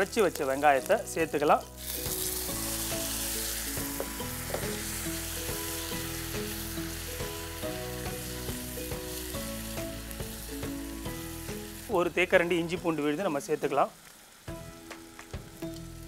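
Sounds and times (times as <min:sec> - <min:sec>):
background music: 0:00.0 - 0:16.0
onion paste sizzling in oil: 0:00.0 - 0:16.0.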